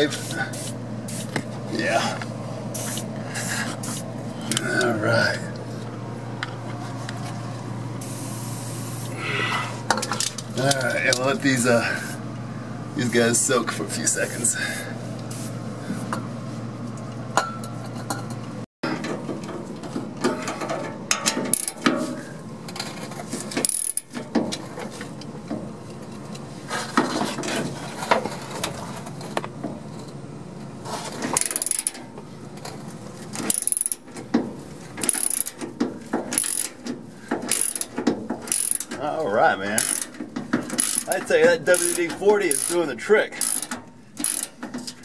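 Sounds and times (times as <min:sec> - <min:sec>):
steady low hum: 0:00.0 - 0:45.0
ratchet wrench clicking: 0:21.5 - 0:21.8, 0:23.6 - 0:24.2, 0:31.4 - 0:32.0, 0:33.4 - 0:34.1, 0:35.0 - 0:35.6, 0:36.3 - 0:36.8, 0:37.4 - 0:39.0, 0:39.8 - 0:45.0.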